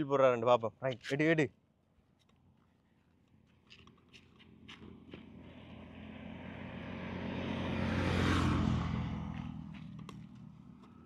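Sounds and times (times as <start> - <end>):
vehicle passing by: 4.5 - 11.0.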